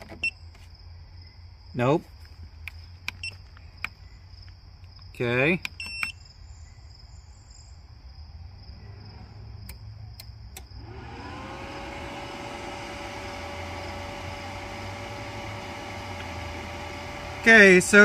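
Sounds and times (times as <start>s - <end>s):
cooling fan whining: 10.6s - 18.0s.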